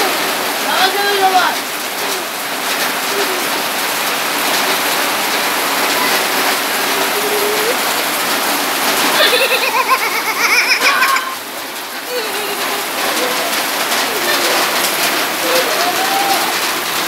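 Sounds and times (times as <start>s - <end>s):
heavy rain: 0.0s - 17.0s
person calling out: 6.8s - 7.8s, 15.4s - 16.6s.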